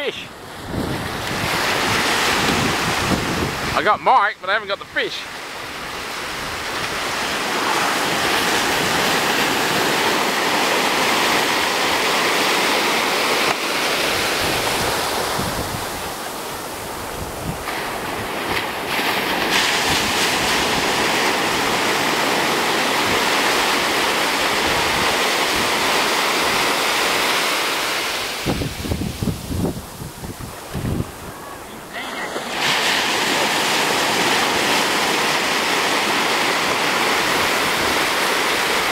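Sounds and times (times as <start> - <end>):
surf breaking on a sandy beach: 0.0 - 38.9
wind buffeting microphone: 0.4 - 3.8, 14.0 - 26.8, 28.3 - 31.9.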